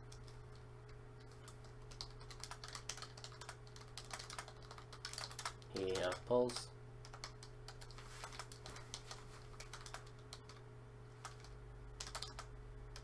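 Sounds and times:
typing on computer keyboard: 1.2s - 10.6s, 11.2s - 13.0s.

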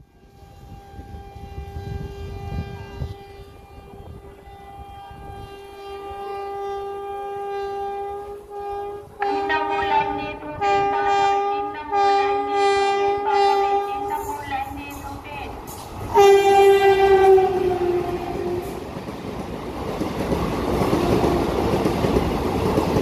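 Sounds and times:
locomotive air horn blasts: 0.0s - 15.1s, 16.1s - 18.8s.

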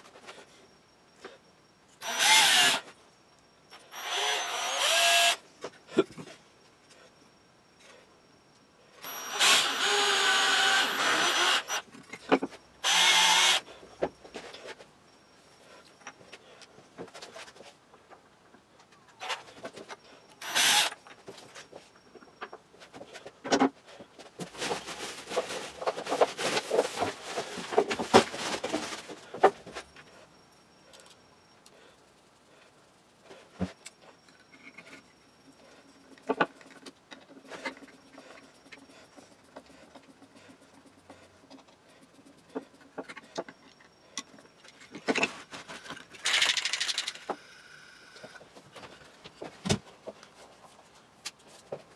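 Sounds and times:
wooden parts clicking and knocking: 36.1s - 47.5s.

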